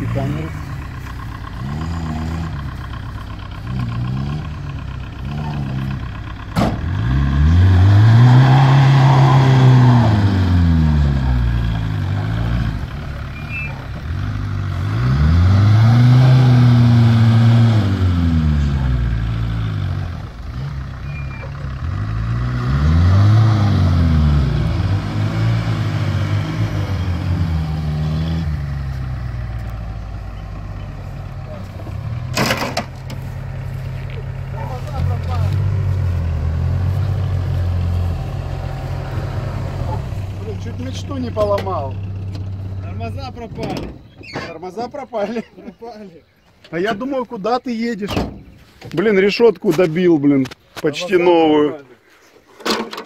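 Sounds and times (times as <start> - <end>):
van engine revving: 0.0 - 45.0.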